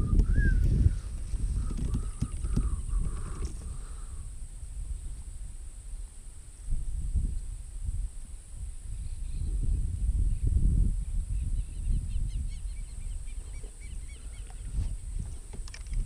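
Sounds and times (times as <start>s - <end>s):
wind buffeting microphone: 0.0s - 16.0s
bird chirping: 11.4s - 14.8s.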